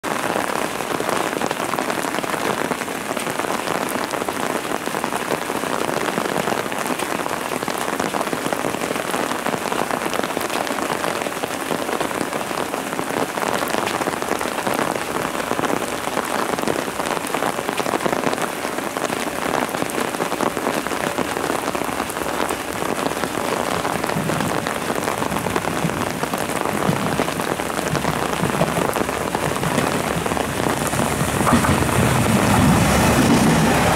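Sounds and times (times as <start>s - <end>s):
rain pattering: 0.0s - 33.9s
railcar engine rumble: 23.2s - 33.9s.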